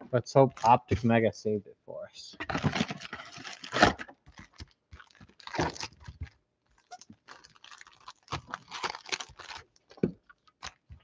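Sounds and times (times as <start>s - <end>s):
foil wrapper tearing and crinkling: 2.5s - 11.0s.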